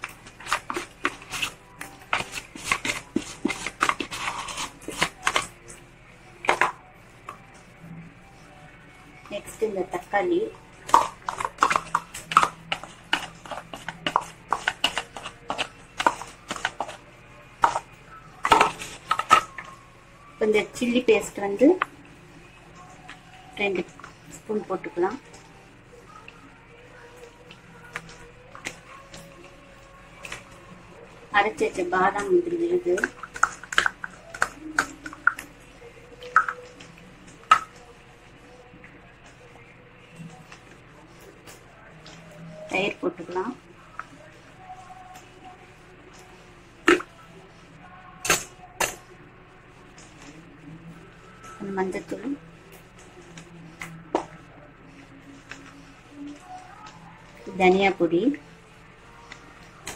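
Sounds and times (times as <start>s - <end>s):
spoon scraping plastic tub: 0.0s - 5.6s, 10.9s - 17.0s, 17.6s - 19.7s, 32.9s - 35.4s
faint steady hum: 0.0s - 59.9s.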